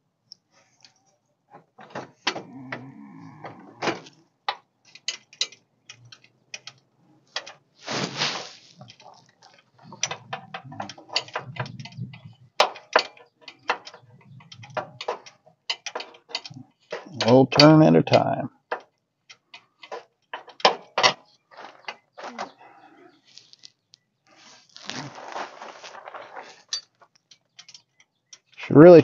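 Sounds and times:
brief hiss: 7.8s - 8.7s
wrench clicking and clanking: 10.0s - 21.2s.

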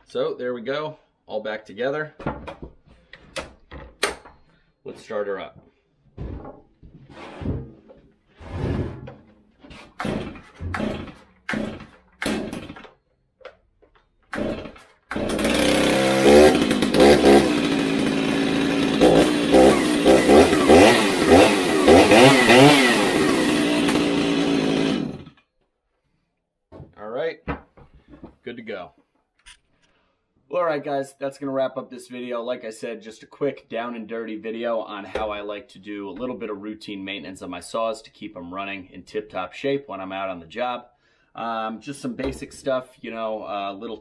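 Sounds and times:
chainsaw revving: 9.9s - 12.9s, 14.3s - 25.4s.

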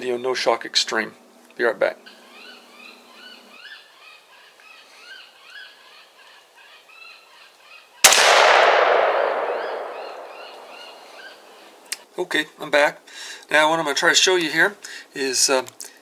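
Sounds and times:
small birds chirping: 1.9s - 8.0s, 9.2s - 12.0s
rifle shot: 8.0s - 11.6s.

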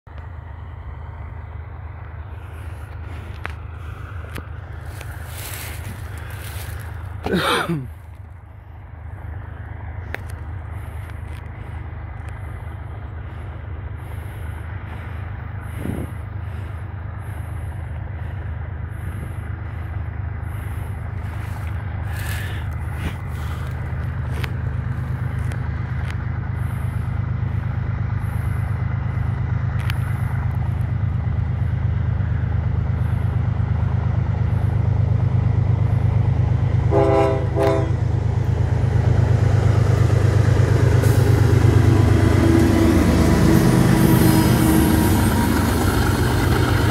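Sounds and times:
diesel locomotive engine rumble: 0.0s - 46.9s
train horn blast: 36.9s - 38.1s.

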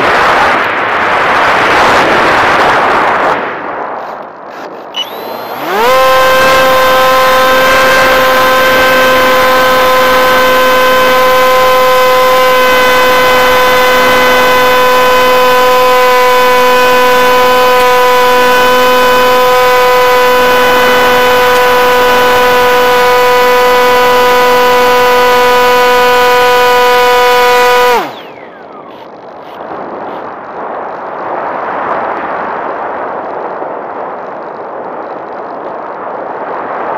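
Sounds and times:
rushing air: 0.0s - 22.5s
electric motor propeller whine: 5.0s - 30.2s.

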